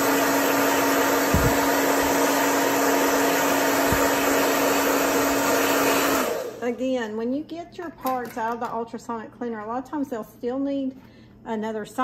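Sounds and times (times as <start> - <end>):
hair dryer running: 0.0 - 6.9.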